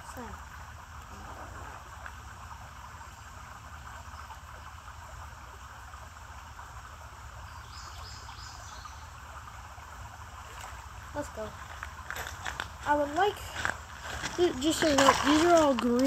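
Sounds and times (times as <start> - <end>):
creek water running: 0.0 - 16.0
insect chorus: 7.2 - 16.0.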